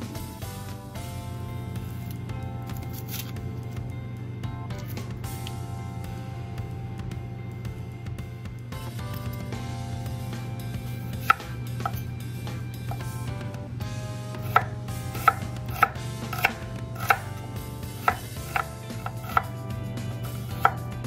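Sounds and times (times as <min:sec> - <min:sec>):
knife striking cutting board: 0:11.1 - 0:12.1, 0:14.4 - 0:17.4, 0:18.0 - 0:19.6, 0:20.2 - 0:20.9.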